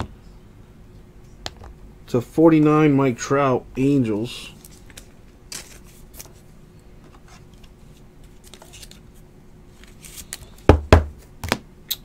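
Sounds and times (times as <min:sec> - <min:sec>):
cards and plastic rustling: 0:04.4 - 0:10.7.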